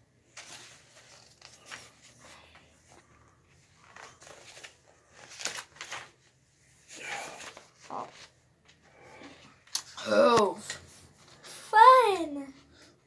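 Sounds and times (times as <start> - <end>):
book pages turning: 0.3 - 8.8.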